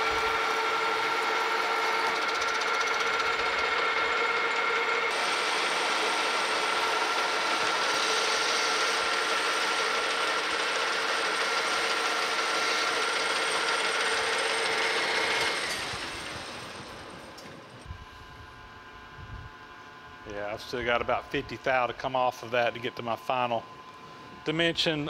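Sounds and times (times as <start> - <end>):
lathe spinning down: 0.0 - 17.8
lathe gearing whine: 0.0 - 25.0
lathe tool cutting hiss: 4.4 - 17.1.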